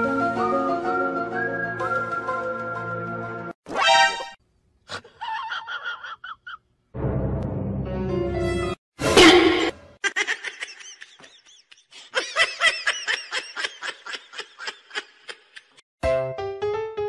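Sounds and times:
music: 0.0s - 3.6s, 7.0s - 8.8s, 16.0s - 17.0s
high-pitched snickering laughter: 4.9s - 6.6s, 10.0s - 15.8s.

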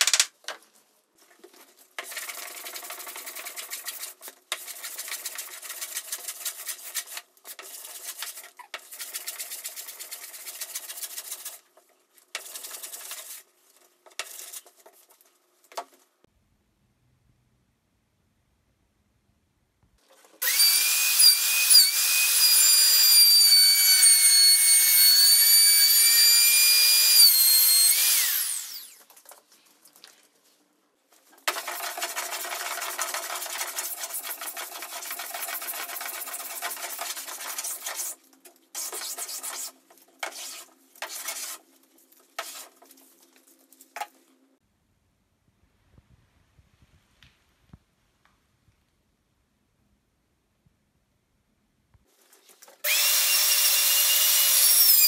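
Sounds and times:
power tool high-pitched whine: 20.4s - 29.0s, 52.9s - 55.0s
hand tool scraping wood edge: 31.5s - 38.2s.

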